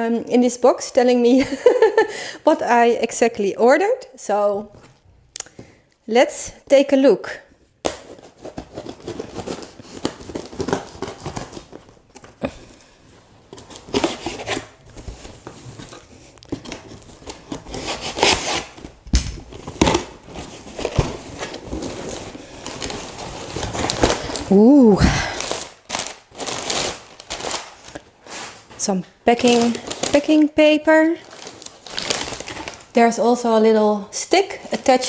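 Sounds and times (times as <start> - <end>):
cardboard scraping and rustling: 8.0 - 11.9, 13.5 - 24.5
knife slicing packing tape: 17.5 - 18.9.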